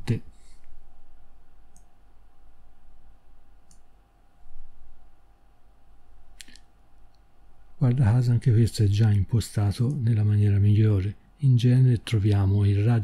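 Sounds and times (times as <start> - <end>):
faint electrical hum: 0.0 - 13.0
computer mouse clicks: 1.7 - 1.9, 3.6 - 3.9.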